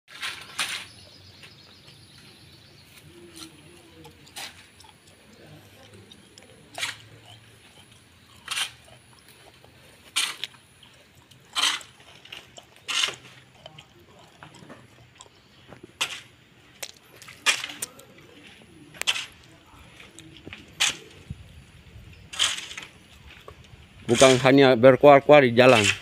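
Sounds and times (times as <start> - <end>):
hoe chopping into stony soil: 6.8 - 7.1, 10.1 - 10.6, 11.6 - 12.0, 22.3 - 23.0.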